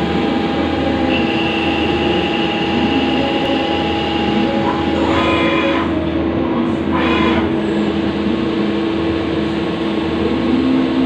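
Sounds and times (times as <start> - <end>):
thin high whine: 0.0 - 8.0
lathe machine hum: 0.0 - 11.0.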